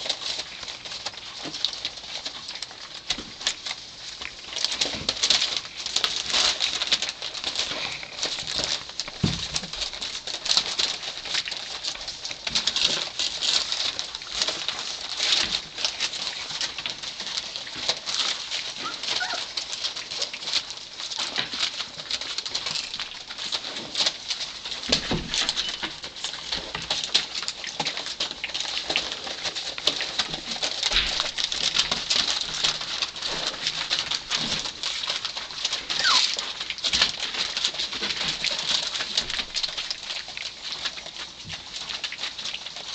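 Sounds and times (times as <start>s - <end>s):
newspaper crinkling: 0.0s - 42.9s
puppies squeaking and whimpering: 18.8s - 20.0s, 25.6s - 25.9s, 35.9s - 36.5s.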